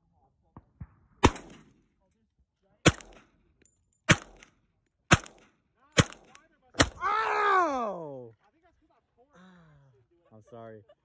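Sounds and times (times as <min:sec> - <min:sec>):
pistol shots with echo: 0:01.0 - 0:01.8, 0:02.8 - 0:03.4, 0:04.1 - 0:07.0.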